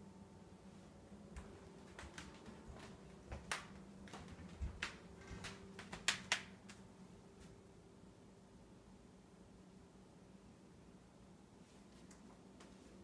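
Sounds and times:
low steady hum: 0.0 - 13.0
faint clicks and taps: 1.3 - 6.8.

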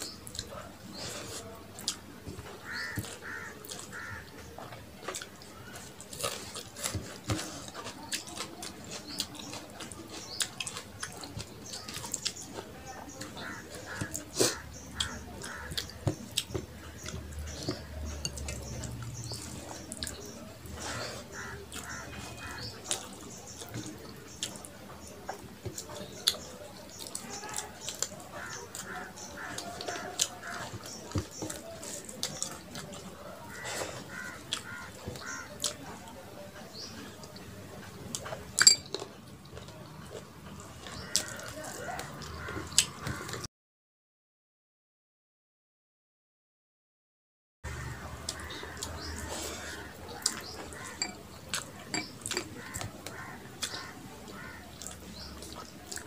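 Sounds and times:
wet chewing and lip smacking: 48.2 - 56.0
fingers clicking against plates: 50.2 - 53.9.

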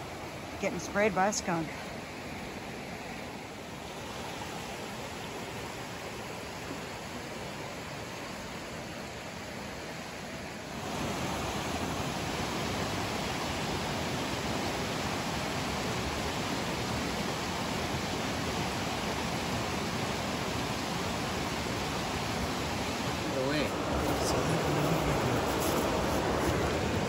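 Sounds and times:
creek water rushing: 0.0 - 27.0.

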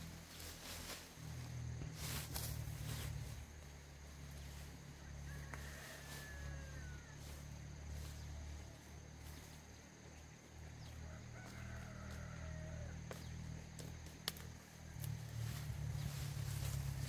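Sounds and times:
steady low rumble: 0.0 - 5.3, 13.1 - 17.0.

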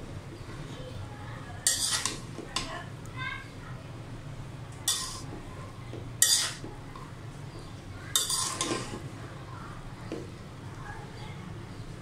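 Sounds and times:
metal spoon scraping a metal pan: 1.6 - 2.3, 4.9 - 5.3, 6.2 - 6.7, 8.1 - 9.0.

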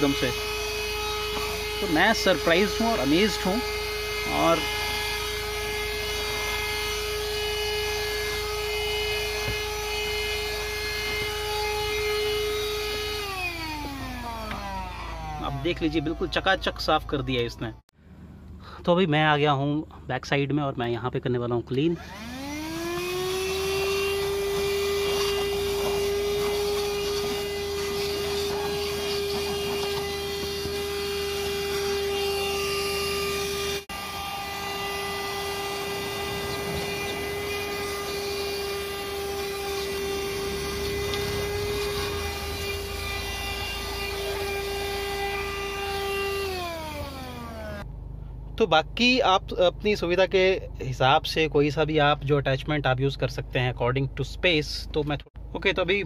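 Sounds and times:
handheld vacuum motor whine: 0.0 - 16.8, 22.0 - 47.9.

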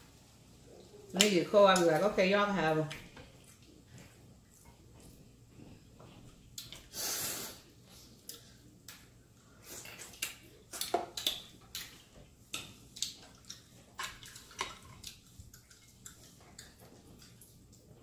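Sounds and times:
wet lip-smacking and sucking: 9.6 - 17.8.

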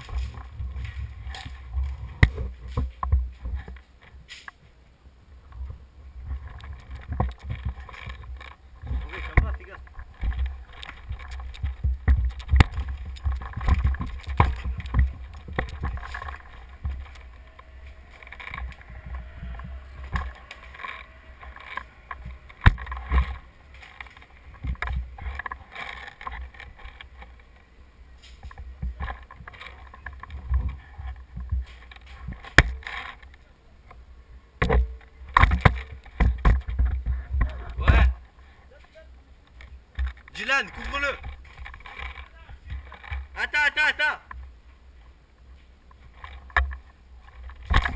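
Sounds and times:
footsteps crunching over rubble: 0.0 - 4.7, 5.5 - 34.1, 34.7 - 43.6
microphone handling rumble: 5.5 - 27.6.

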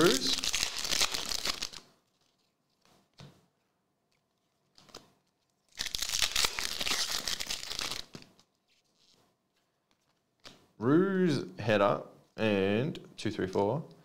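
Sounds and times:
plastic foil wrapper tearing and crinkling: 0.0 - 2.8, 4.9 - 9.2.

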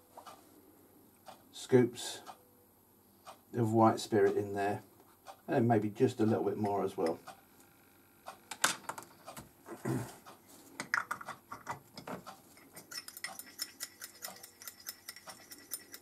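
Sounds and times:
clicks and taps: 10.8 - 16.0
rod stirring paint in metal cup: 10.9 - 16.0
metal rod clinking against glass jar: 12.6 - 16.0.

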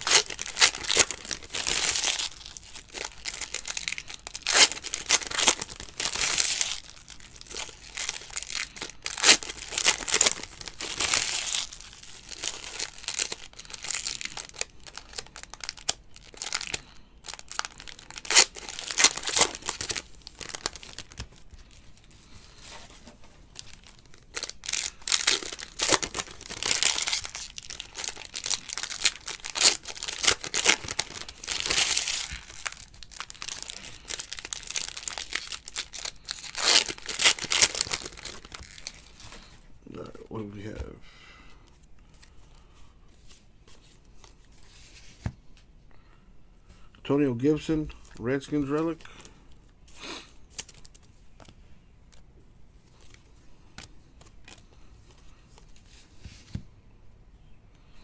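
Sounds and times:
foil wrappers crinkling and tearing: 0.0 - 39.6, 50.4 - 51.5.

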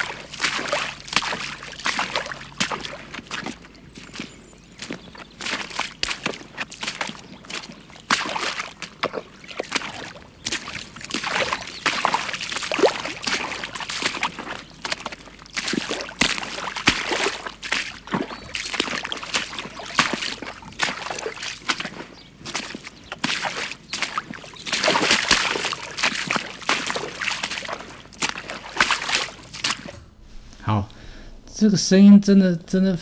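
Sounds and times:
legs sloshing through water: 0.0 - 30.3.

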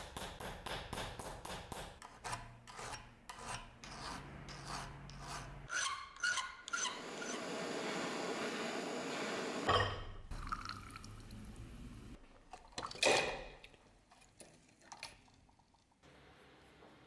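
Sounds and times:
hot steel quenching hiss: 7.2 - 9.7
liquid drips and splashes: 10.3 - 11.6, 12.2 - 16.0.

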